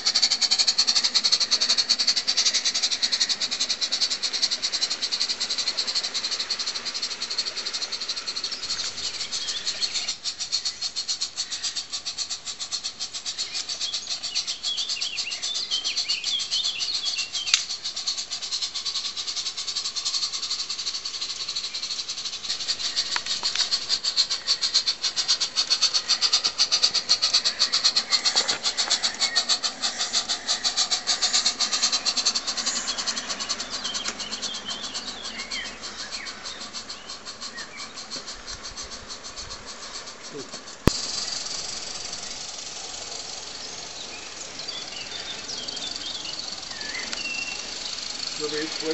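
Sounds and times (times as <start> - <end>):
birds chirping: 0.0 - 48.9
model train wheels clicking on track: 0.0 - 48.9.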